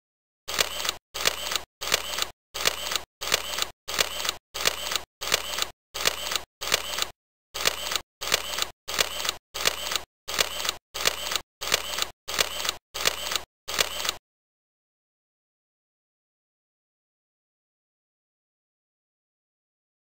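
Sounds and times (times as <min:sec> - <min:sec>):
camera shutter click: 0:00.5 - 0:14.2.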